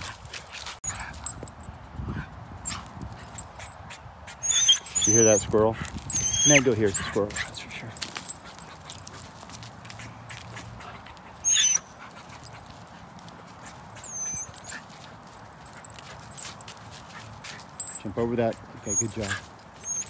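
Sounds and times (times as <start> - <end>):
dog whining: 4.4 - 7.6, 11.4 - 11.9, 14.0 - 14.8, 18.8 - 20.0.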